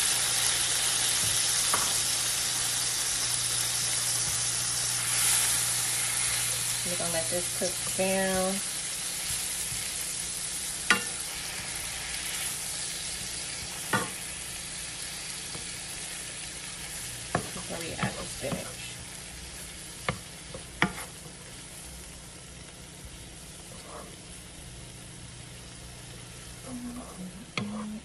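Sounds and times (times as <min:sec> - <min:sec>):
onions sizzling in a frying pan: 0:00.0 - 0:28.0
wooden spatula knocking on pan: 0:17.3 - 0:18.7.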